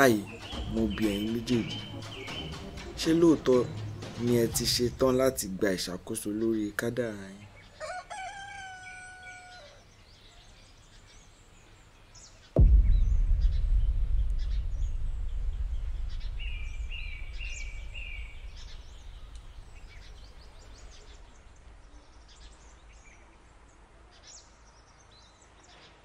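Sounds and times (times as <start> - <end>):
birds chirping: 0.0 - 26.0
deep cinematic boom: 12.6 - 23.0.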